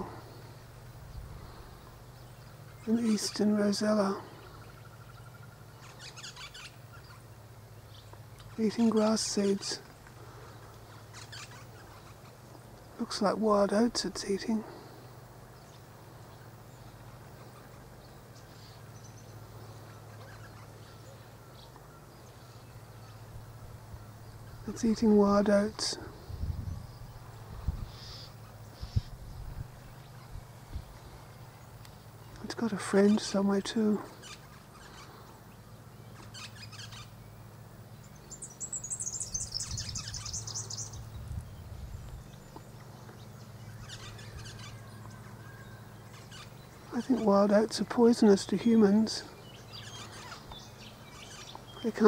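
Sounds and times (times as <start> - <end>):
bird chirping and twittering: 0.0 - 52.0
steady low hum: 0.0 - 52.0
faint high bird chirps: 34.0 - 47.3.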